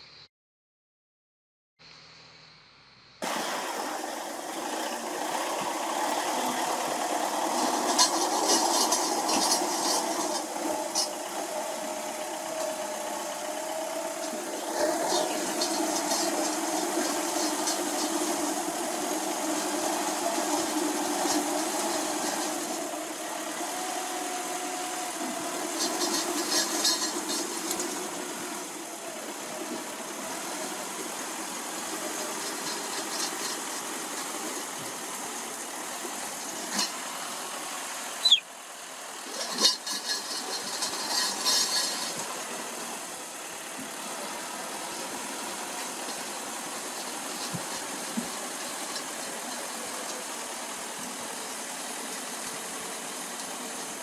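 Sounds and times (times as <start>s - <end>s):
bulldozer diesel engine: 3.2s - 54.0s.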